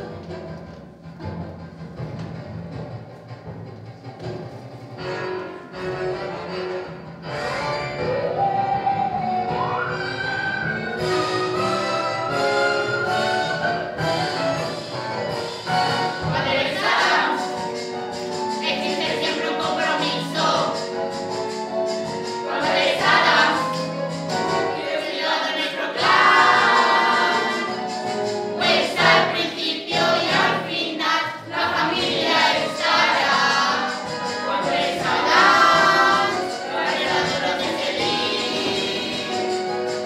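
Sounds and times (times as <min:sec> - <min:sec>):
instrumental accompaniment: 0:00.0 - 0:40.0
young voices singing together: 0:16.2 - 0:17.8, 0:18.6 - 0:21.0, 0:22.4 - 0:39.7.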